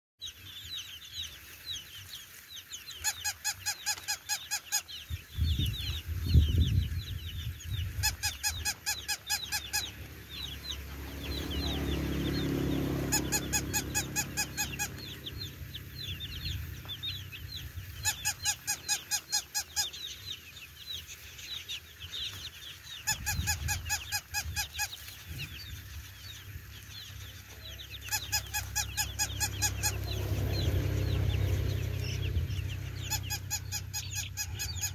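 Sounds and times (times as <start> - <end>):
chicks peeping: 0.2 - 34.9
rapid pulsed honking call: 8.1 - 15.6
low rumble: 9.7 - 18.2, 25.2 - 34.9.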